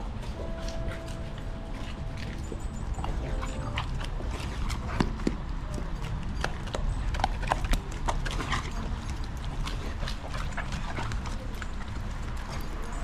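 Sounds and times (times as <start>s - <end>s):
dogs crunching food: 0.0s - 13.0s
steady low rumble: 0.0s - 13.0s.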